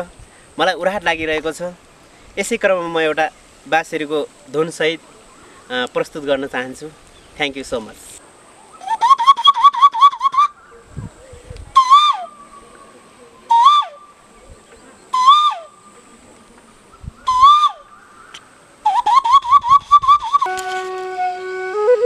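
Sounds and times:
whistled bird-like calls: 0:08.6 - 0:14.2, 0:14.8 - 0:16.0, 0:16.9 - 0:20.7.

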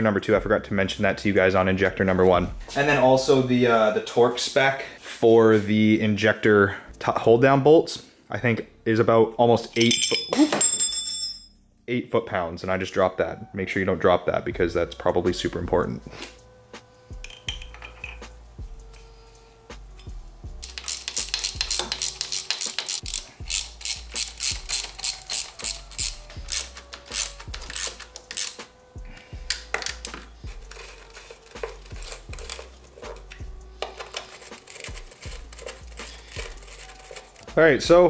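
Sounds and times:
ratchet wrench clicking: 0:20.6 - 0:28.7, 0:29.4 - 0:37.3.

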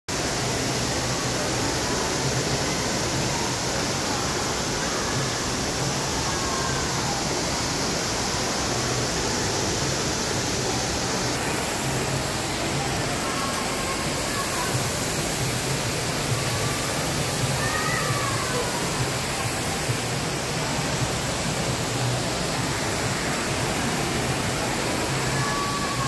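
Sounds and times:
fountain water splashing: 0:00.1 - 0:26.0
faint voices: 0:00.2 - 0:26.0.

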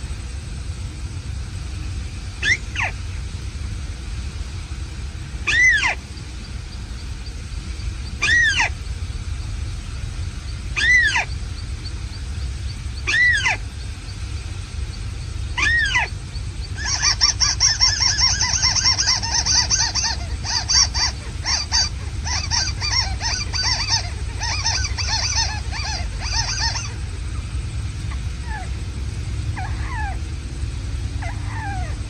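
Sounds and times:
recorded bird calls from speaker: 0:02.4 - 0:03.2, 0:05.3 - 0:32.0.

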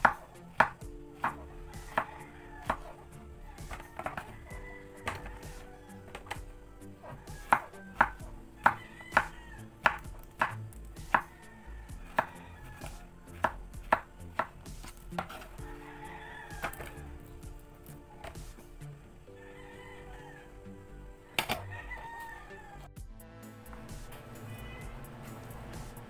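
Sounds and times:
knife cutting on wooden board: 0:00.0 - 0:03.0, 0:03.6 - 0:04.3, 0:05.0 - 0:11.3, 0:12.1 - 0:15.7, 0:16.6 - 0:17.0.

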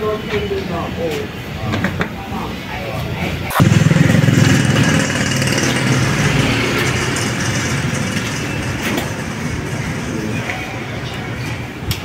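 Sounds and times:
engine idling: 0:03.6 - 0:11.0.

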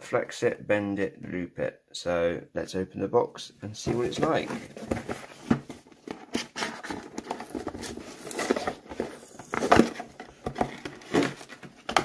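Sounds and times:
cardboard scraping and tapping: 0:03.8 - 0:12.0.

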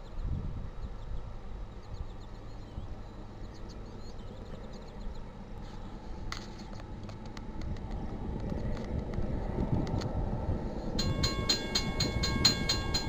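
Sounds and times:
birds chirping: 0:00.0 - 0:06.9
steady low rumble: 0:00.0 - 0:13.0.

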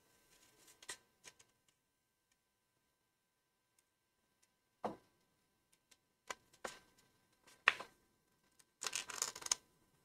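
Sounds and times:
sticker sheet crinkles and ticks: 0:08.6 - 0:09.6.

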